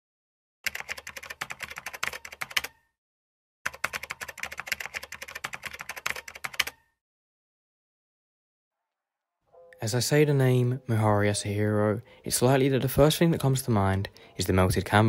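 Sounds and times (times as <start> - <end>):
typewriter keys clacking: 0.7 - 2.7, 3.7 - 6.8.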